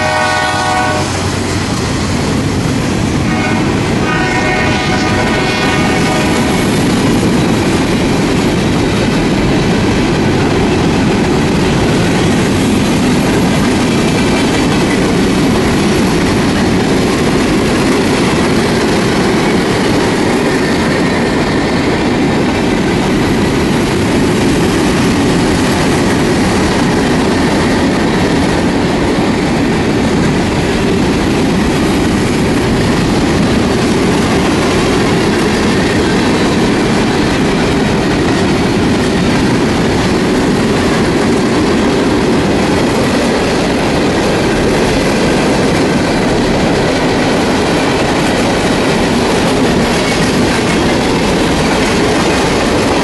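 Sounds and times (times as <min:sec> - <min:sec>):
train wheels on rails: 0:00.0 - 0:53.0.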